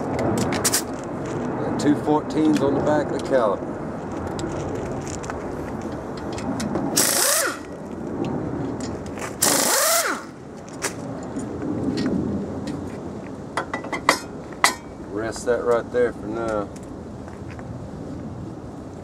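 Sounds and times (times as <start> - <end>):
air wrench hissing and whining: 7.0 - 7.7, 9.4 - 10.3.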